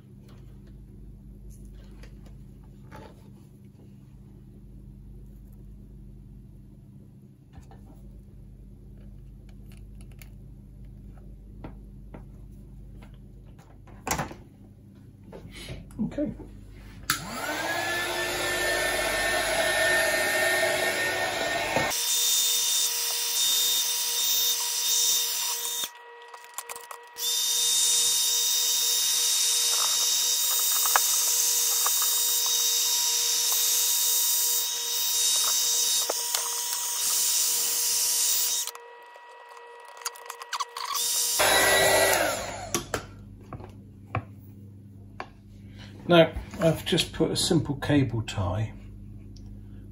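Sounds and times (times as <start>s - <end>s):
heat gun fan whine: 17.0s - 43.6s.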